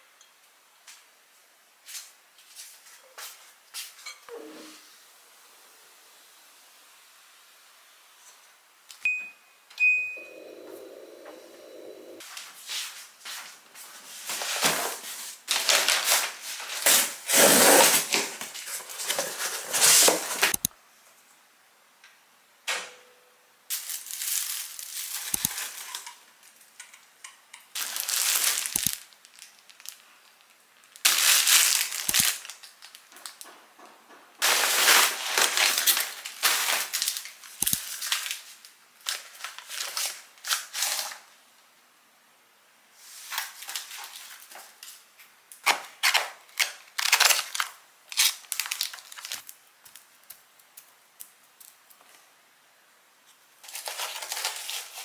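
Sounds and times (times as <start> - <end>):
short electronic beeps: 9.1 - 10.4
rustling and crackling: 23.7 - 41.2.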